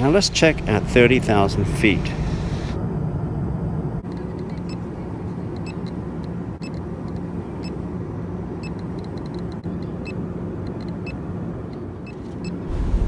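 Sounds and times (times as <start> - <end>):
airliner cabin drone: 0.0 - 13.0
geiger counter clicks: 8.6 - 10.0, 10.6 - 11.1.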